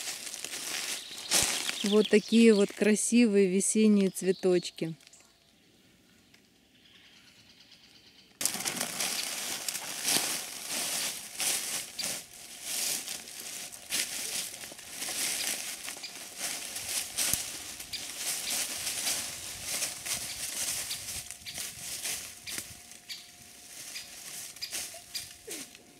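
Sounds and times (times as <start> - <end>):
footsteps crunching dry leaves: 0.0 - 3.0, 8.4 - 25.9.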